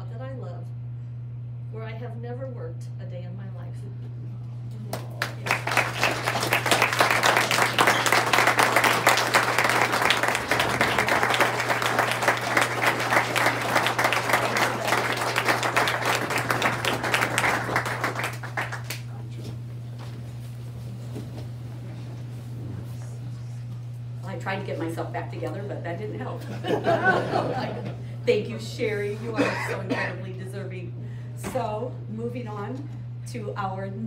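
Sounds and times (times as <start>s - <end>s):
audience applauding: 4.9s - 19.2s.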